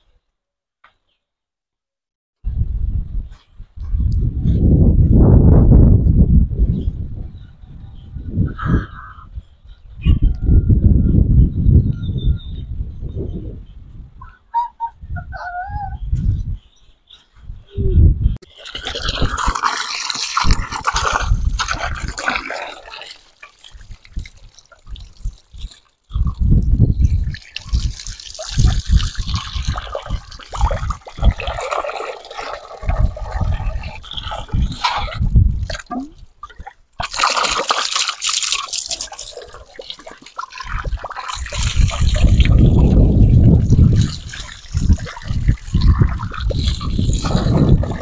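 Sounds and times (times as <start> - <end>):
water splashing over chicken: 18.4 - 26.3, 27.1 - 48.0
water trickling: 18.4 - 34.9, 35.6 - 48.0.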